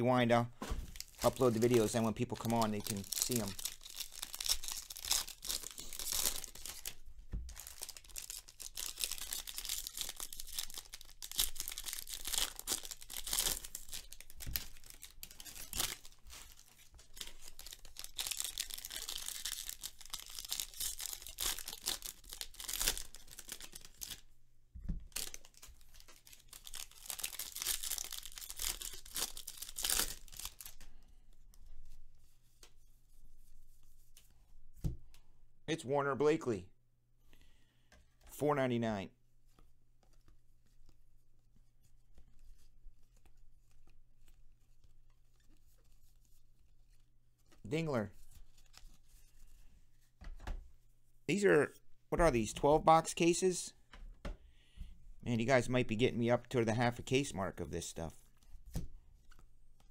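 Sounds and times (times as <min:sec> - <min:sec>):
cards being handled: 0:00.6 - 0:24.2, 0:58.1 - 0:59.9
foil wrappers tearing and crinkling: 0:00.9 - 0:24.2, 0:25.1 - 0:30.8.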